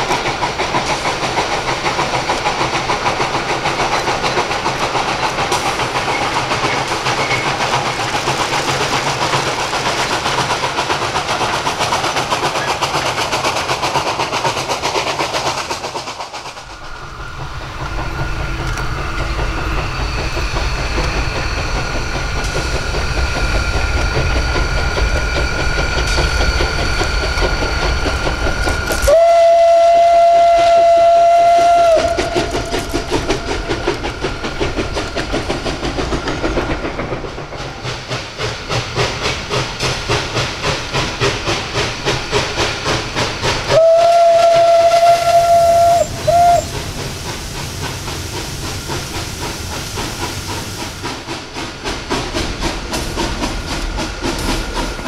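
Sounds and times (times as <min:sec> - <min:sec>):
steam locomotive exhaust beating: 0:00.0 - 0:55.0
steam locomotive whistle: 0:29.0 - 0:34.0, 0:43.6 - 0:46.9.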